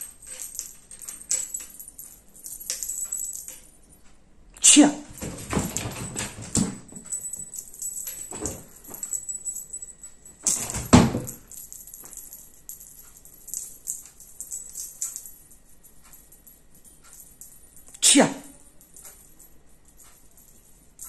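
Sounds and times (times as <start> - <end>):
faint rattling: 5.1 - 21.0.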